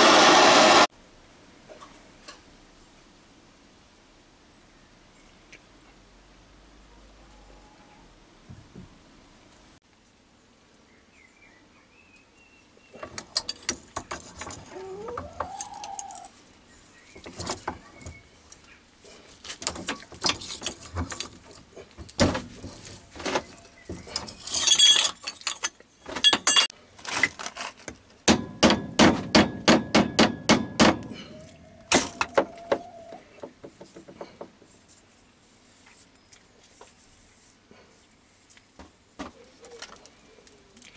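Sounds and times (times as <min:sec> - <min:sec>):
metal clanks and knocks: 0:19.6 - 0:27.4, 0:28.3 - 0:31.3, 0:31.9 - 0:32.9.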